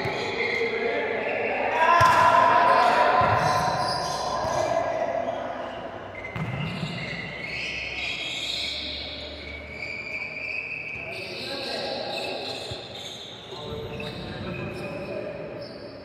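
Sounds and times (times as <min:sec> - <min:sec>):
voices in background: 0:00.0 - 0:16.0
volleyball bouncing on gym floor: 0:01.9 - 0:02.6, 0:06.2 - 0:07.0.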